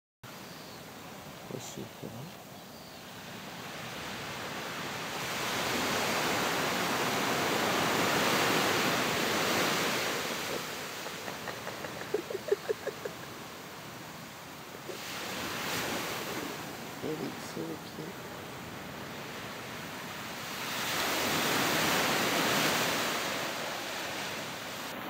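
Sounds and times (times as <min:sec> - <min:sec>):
waves washing onto beach: 0:00.3 - 0:25.0.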